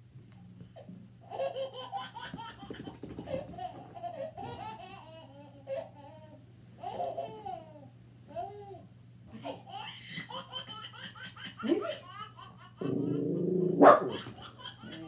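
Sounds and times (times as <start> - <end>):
baby laughing through tv speakers: 1.2 - 8.4, 9.4 - 13.2, 14.0 - 15.0.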